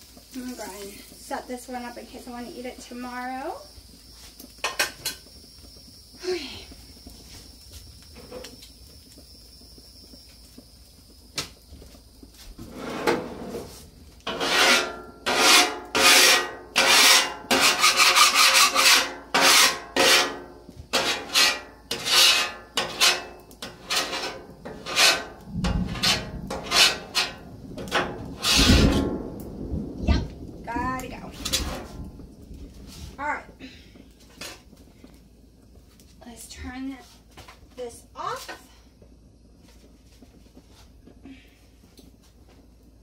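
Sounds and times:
scraper rasping on steel griddle: 12.7 - 29.0.

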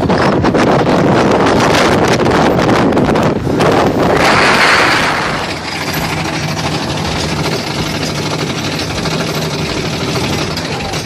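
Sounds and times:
roller coaster wheels rattling: 0.0 - 11.0
wind rushing over microphone: 0.0 - 11.0.

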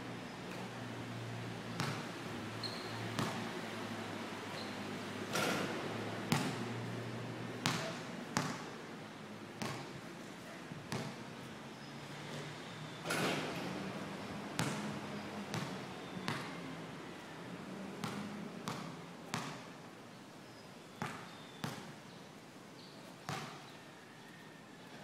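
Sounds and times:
basketball bouncing on concrete: 1.7 - 2.0, 3.2 - 3.4, 6.3 - 6.6, 7.6 - 8.7, 9.6 - 9.9, 10.9 - 11.1, 14.6 - 14.8, 15.5 - 16.5, 18.0 - 19.6, 21.0 - 21.9, 23.3 - 23.6.

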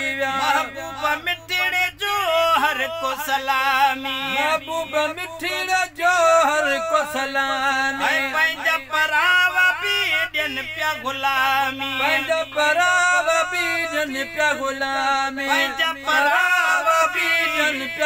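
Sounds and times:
men singing ornamented melody: 0.0 - 18.0.

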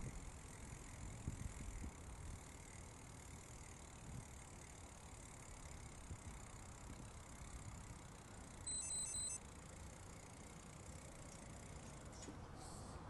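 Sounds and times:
wind noise while cycling: 0.0 - 8.1
bicycle tyres on concrete: 0.0 - 8.7.

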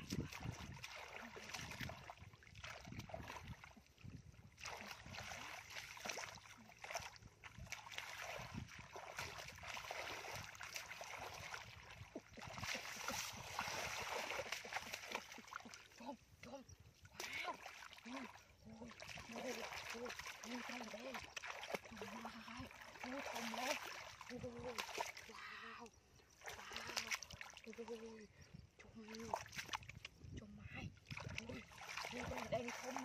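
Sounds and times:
hands splashing in muddy water: 0.0 - 16.2, 17.0 - 25.4, 26.4 - 28.1, 31.0 - 33.0.

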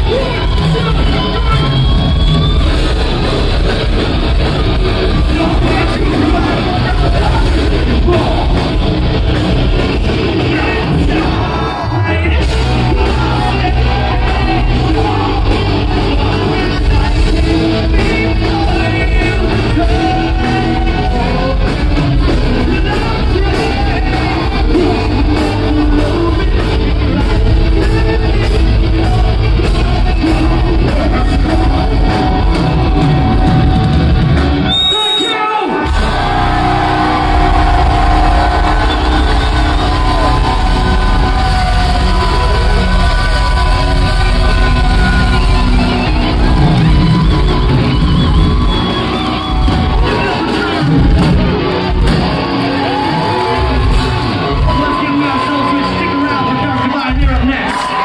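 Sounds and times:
rock band playing loud: 0.0 - 58.0
person singing and yelling: 10.2 - 33.9, 35.3 - 48.1.

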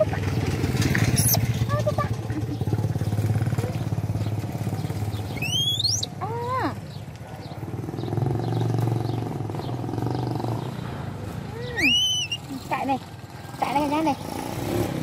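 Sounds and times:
motorcycle engine running: 0.0 - 11.1
short high-pitched calls: 5.4 - 6.1, 11.8 - 12.5.

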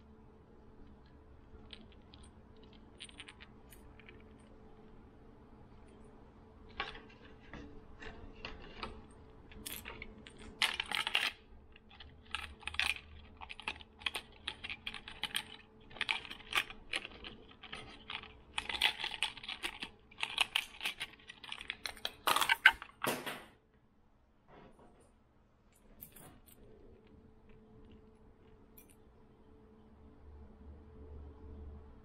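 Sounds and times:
plastic packaging crinkling: 6.7 - 23.0.

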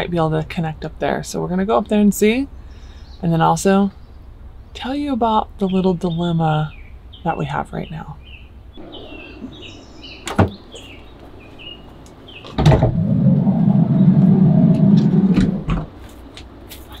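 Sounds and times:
birds chirping: 0.0 - 16.0
sliding van door rumbling shut: 8.8 - 11.0, 11.6 - 16.0.

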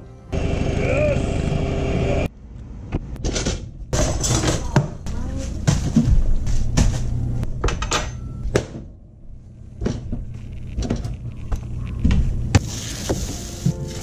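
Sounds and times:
kitchen items knocking and clicking: 3.2 - 6.2
low steady hum: 3.9 - 14.0.

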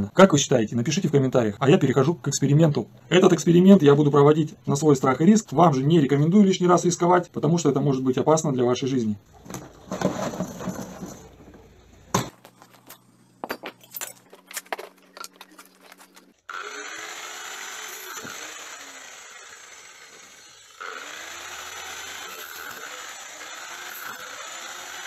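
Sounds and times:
handling knocks and clicks: 9.4 - 16.4
grinder disc cutting steel: 14.0 - 25.0
angle grinder running: 15.8 - 25.0.

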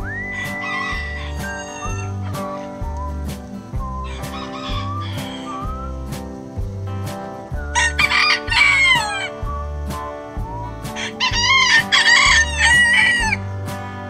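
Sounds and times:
rooster crowing: 0.0 - 3.0, 3.7 - 6.5, 7.6 - 9.4, 11.0 - 14.0
background music with steady beat: 0.0 - 14.0.

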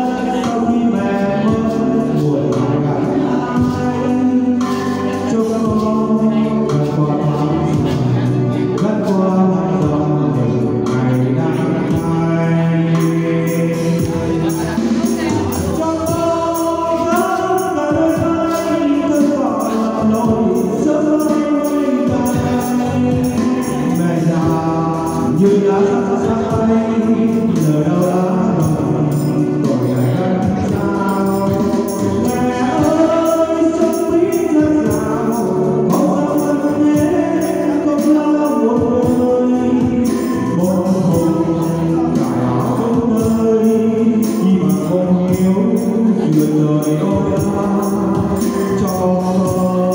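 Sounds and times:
backing music: 0.0 - 49.9
man singing: 0.0 - 49.9
tambourines shaken: 10.9 - 49.9.

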